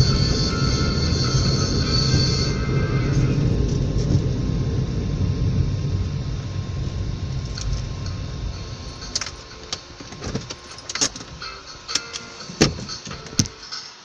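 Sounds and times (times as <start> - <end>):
car engine and road rumble: 0.0 - 13.8
sharp clicks and light rattles: 7.4 - 8.2, 9.0 - 13.6.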